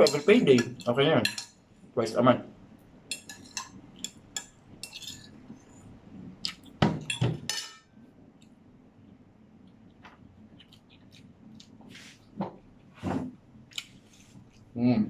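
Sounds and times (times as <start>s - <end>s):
fork scraping a plate: 4.8s - 5.4s.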